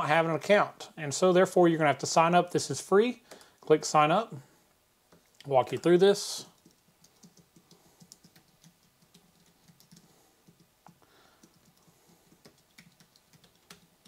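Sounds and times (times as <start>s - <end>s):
typing on a keyboard: 6.5s - 14.0s.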